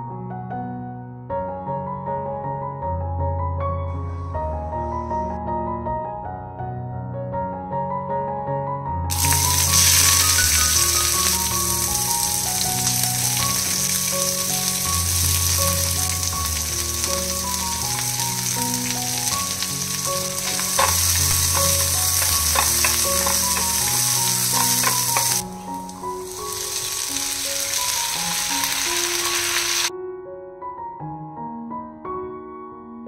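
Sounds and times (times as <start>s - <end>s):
onion sizzling in hot oil: 9.1s - 29.9s
wooden spatula stirring a pan: 17.8s - 25.5s.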